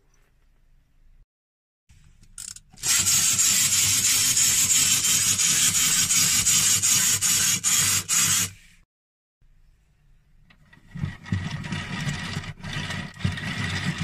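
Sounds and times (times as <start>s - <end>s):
clockwork toy motor whirring: 2.4s - 8.6s, 11.6s - 14.0s.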